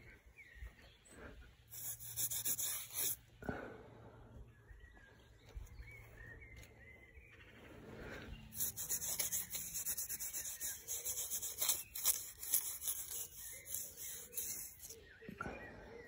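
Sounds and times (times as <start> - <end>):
scratchy rubbing on microphone: 1.7 - 3.2, 8.5 - 15.0.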